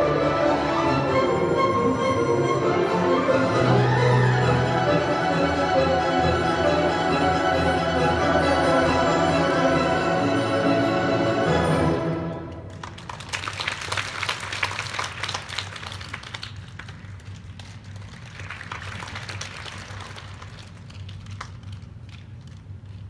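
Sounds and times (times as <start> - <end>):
audience applause: 12.7 - 21.7.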